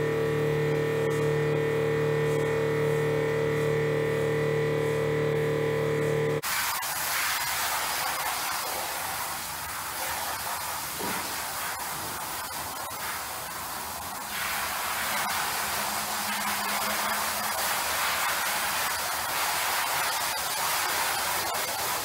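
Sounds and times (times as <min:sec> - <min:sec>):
hose spray on rug: 0:06.4 - 0:22.0.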